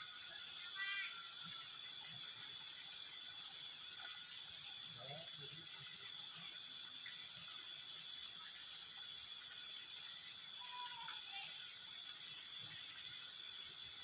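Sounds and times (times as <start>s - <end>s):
high hiss: 0.0s - 14.0s
faint tick: 8.2s - 8.4s.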